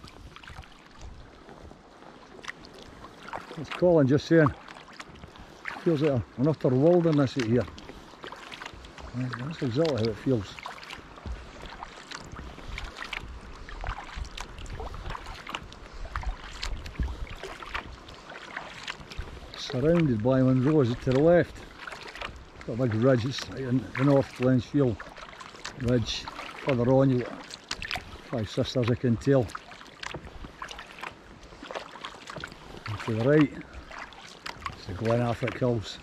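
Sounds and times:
paddle drips and splashes: 0.0 - 36.0
water washing along hull: 0.0 - 36.0
wind buffeting microphone: 11.2 - 18.1, 19.0 - 21.7.

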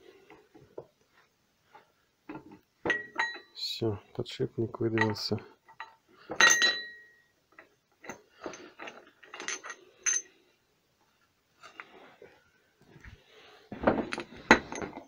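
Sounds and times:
metal clink: 2.8 - 3.6, 4.9 - 10.3.

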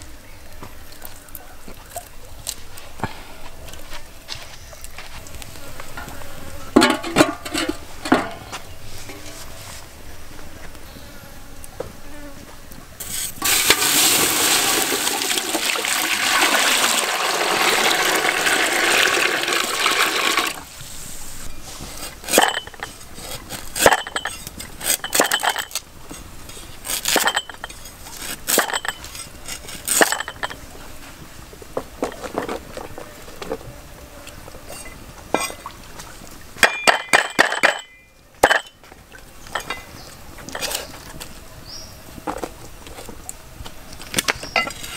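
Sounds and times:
water poured into metal pot: 13.4 - 20.6.

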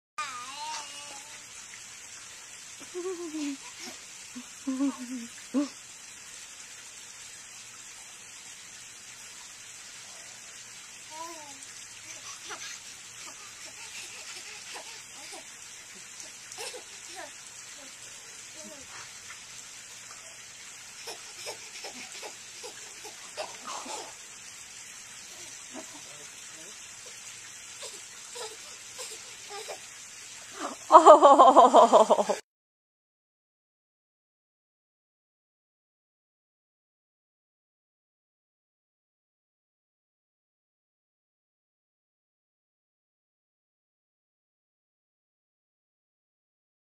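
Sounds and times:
baby babbling: 0.2 - 1.4, 11.1 - 15.5, 16.6 - 18.0, 21.0 - 24.2, 27.8 - 29.8
steady hiss: 0.2 - 32.4
baby giggling: 2.8 - 5.7, 12.1 - 15.5, 16.2 - 17.3, 21.0 - 24.2.

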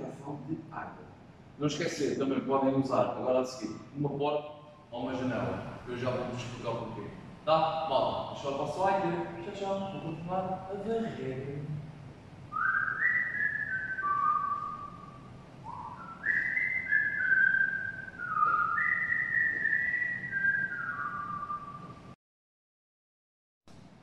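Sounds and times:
man whistling a tune: 12.5 - 22.2.

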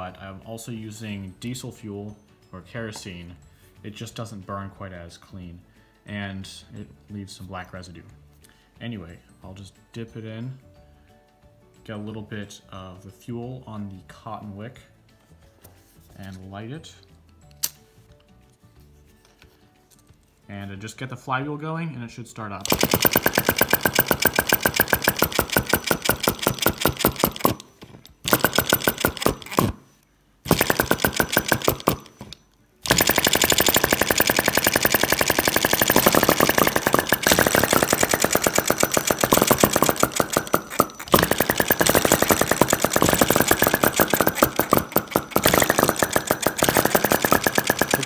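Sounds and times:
small engine popping clatter: 22.6 - 29.8, 30.5 - 48.0.

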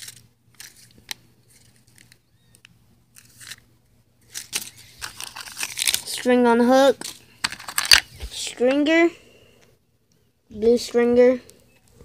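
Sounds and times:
plastic packet crinkling: 0.0 - 2.2, 4.2 - 6.3, 6.9 - 8.1.

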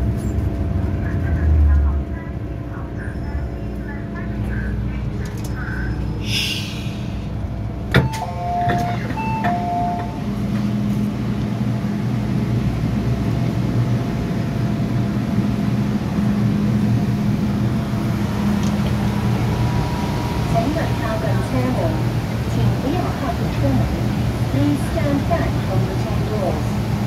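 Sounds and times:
train hum and rumble: 0.0 - 27.0
air hiss: 6.2 - 7.3
two-tone door chime: 8.0 - 10.2.

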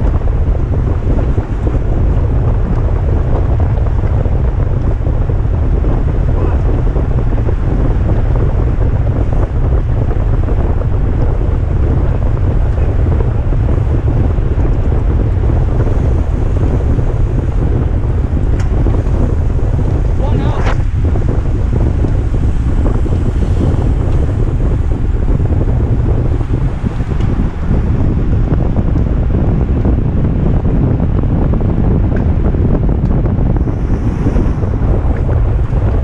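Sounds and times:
wind buffeting microphone: 0.0 - 36.0.

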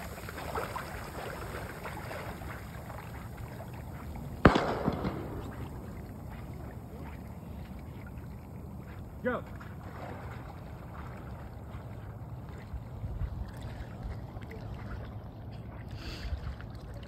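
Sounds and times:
water sloshing: 0.0 - 17.0
wind: 0.0 - 17.0
sharp bang: 4.4 - 6.1.

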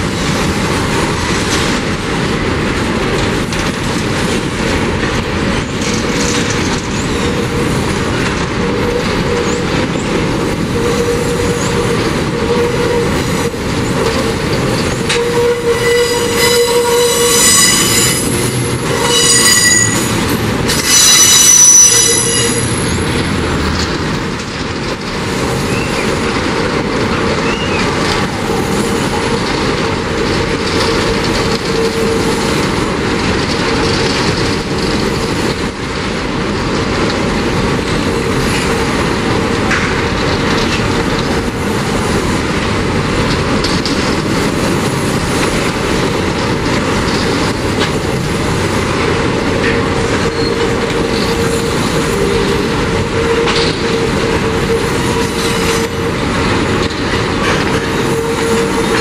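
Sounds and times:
train wheels rumbling on rails: 0.0 - 59.0
wheel squeal: 15.1 - 23.1.

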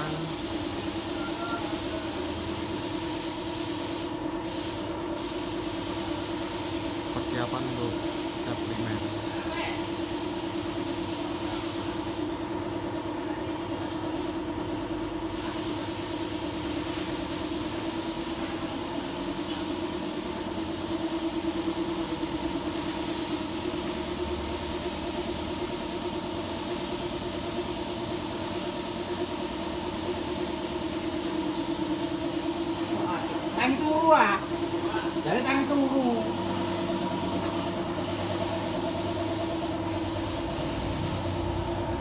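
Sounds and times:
high air hiss: 0.0 - 12.3, 24.8 - 41.8.

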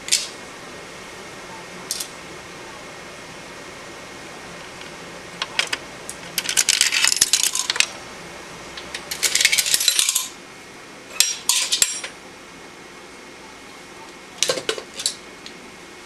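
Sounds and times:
coin rattling through payphone mechanism: 6.4 - 7.9.

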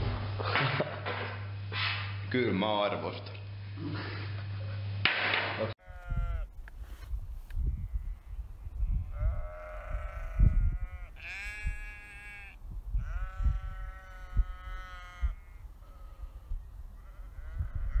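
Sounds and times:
sheep bleating: 5.8 - 6.5, 9.0 - 18.0.

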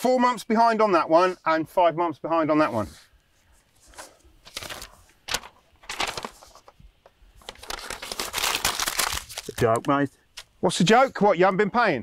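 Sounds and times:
paper rustling: 2.7 - 10.5.

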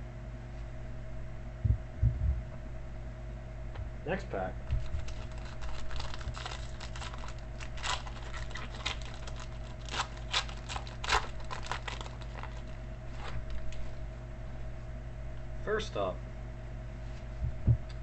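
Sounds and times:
wrapper crinkling: 4.6 - 13.9
wrapper ripping: 4.8 - 13.8.

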